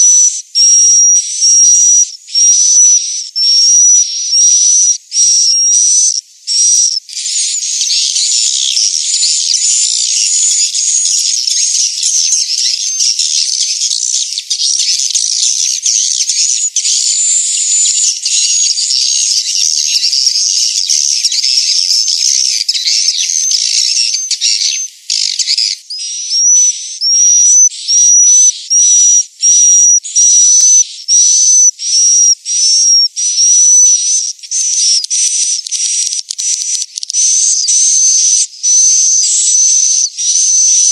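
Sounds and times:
high-pitched bird twittering: 0.0 - 40.9
short high bird chirps: 16.0 - 40.9.

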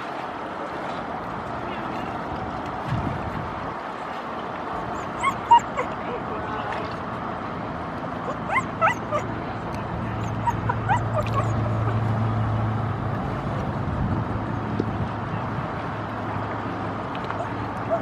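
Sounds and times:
low engine-like drone: 0.0 - 18.0
gulls calling: 10.1 - 12.0.

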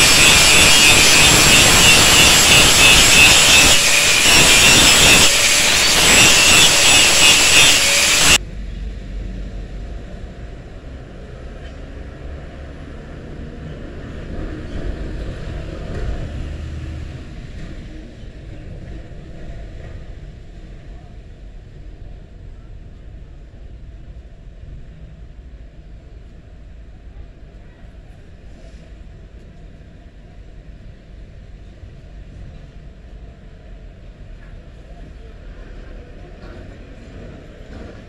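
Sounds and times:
angle grinder grinding steel: 0.0 - 8.4.

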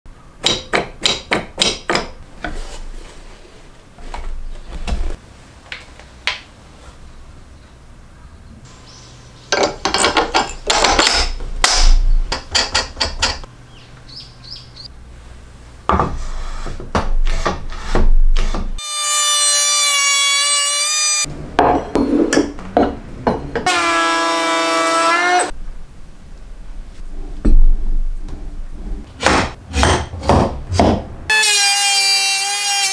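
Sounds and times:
steel parts clicking and knocking: 9.5 - 13.5.

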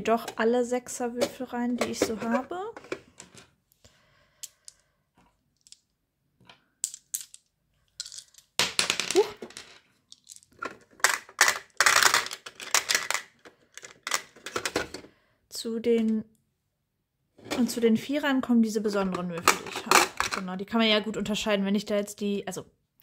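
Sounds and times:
dice clicking and rattling: 5.6 - 5.8, 6.8 - 14.8.

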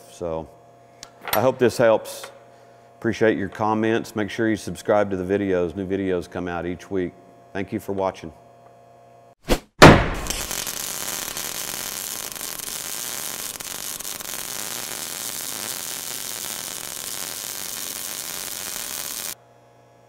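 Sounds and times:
welding arc crackling hiss: 10.1 - 19.4.

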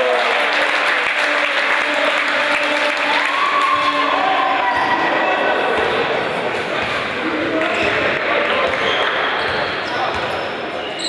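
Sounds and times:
crowd applauding and cheering: 0.0 - 5.6
people shouting: 3.1 - 5.3.

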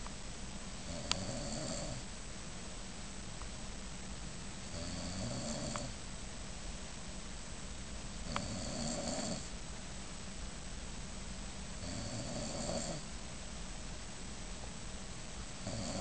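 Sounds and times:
man snoring: 0.8 - 2.0, 4.7 - 5.9, 8.3 - 9.5, 11.8 - 13.0, 15.6 - 16.0.

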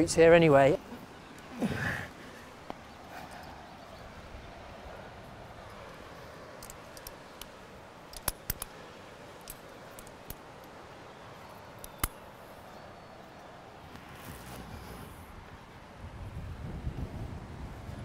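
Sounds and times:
low steady hiss: 0.0 - 18.0
climbing gear metallic clicks: 6.6 - 8.8, 11.8 - 12.2.

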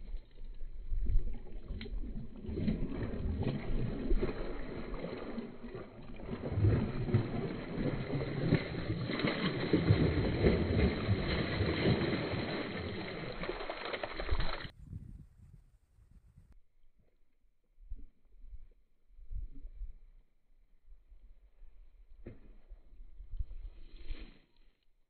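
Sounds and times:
fish splashing in water: 1.2 - 14.7.

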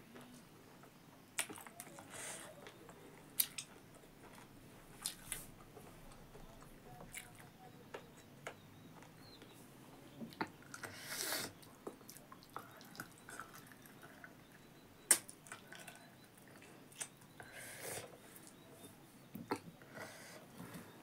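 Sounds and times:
person chewing food: 1.4 - 7.5, 10.3 - 18.6.

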